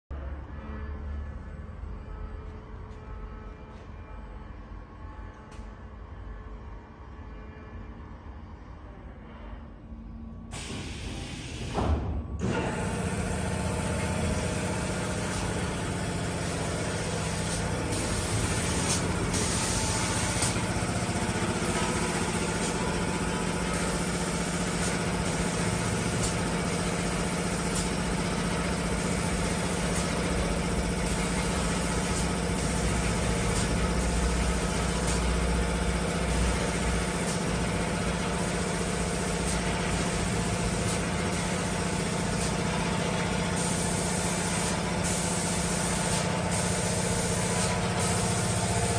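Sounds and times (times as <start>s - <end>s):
spray gun hiss: 10.5s - 11.8s, 12.8s - 35.4s, 36.2s - 37.6s, 38.2s - 42.8s, 43.6s - 48.9s
spray painting machine humming: 10.5s - 11.8s, 12.4s - 48.9s.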